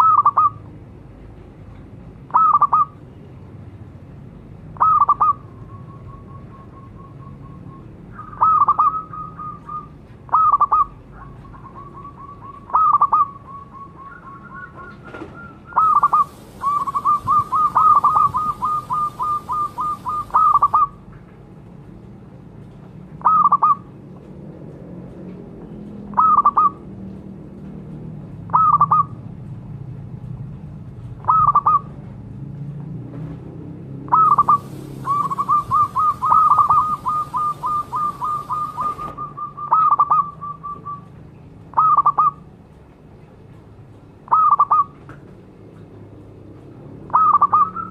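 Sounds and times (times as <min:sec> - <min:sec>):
soft bird trills: 0:04.8 - 0:21.0, 0:34.1 - 0:42.4
dove cooing: 0:08.2 - 0:20.9, 0:34.1 - 0:41.1.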